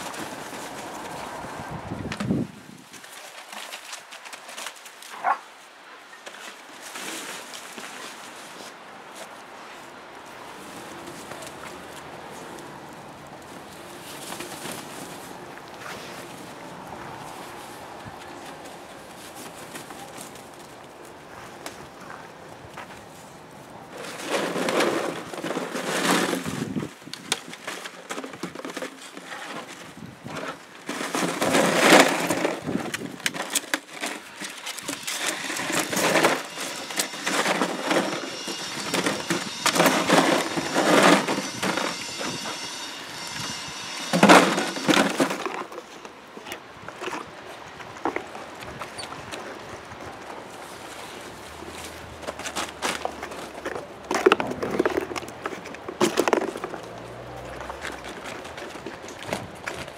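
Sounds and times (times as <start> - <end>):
plastic crunching and rustling: 23.9 - 42.1.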